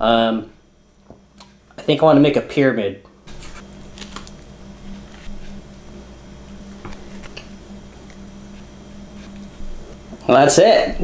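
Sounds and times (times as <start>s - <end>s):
low hum: 3.0s - 11.0s.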